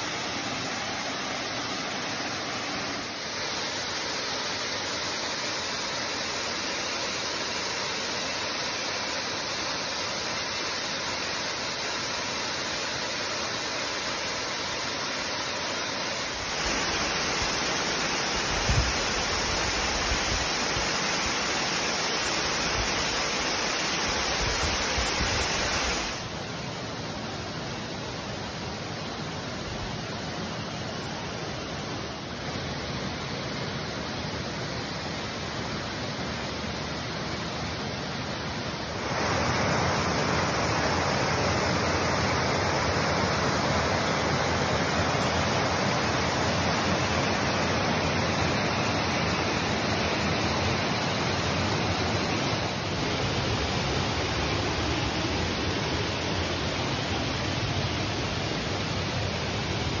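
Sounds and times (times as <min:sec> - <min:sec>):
waterfall rushing: 0:00.0 - 0:29.4, 0:30.0 - 1:00.0.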